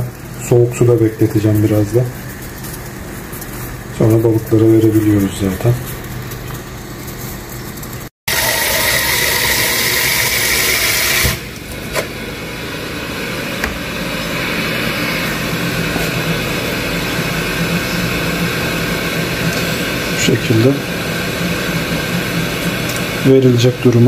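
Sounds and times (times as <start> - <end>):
water running from tap: 8.3 - 11.5
steady rushing noise with hum: 11.7 - 23.9.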